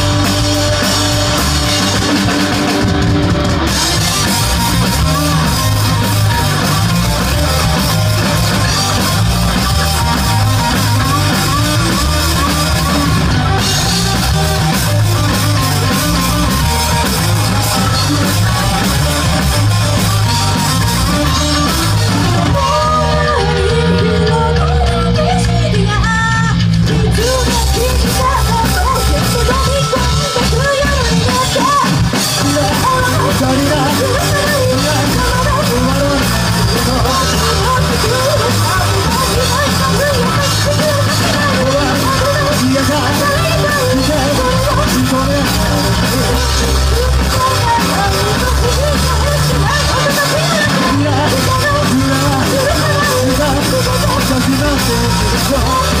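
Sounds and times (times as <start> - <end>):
drums and cymbals: 0.0 - 56.0
live rock band playing: 0.0 - 56.0
woman singing: 3.7 - 56.0.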